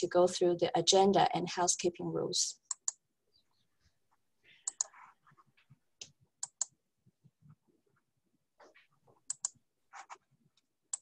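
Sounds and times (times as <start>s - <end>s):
computer mouse clicks: 2.7s - 3.0s, 4.6s - 5.0s, 6.0s - 6.8s, 9.2s - 10.2s.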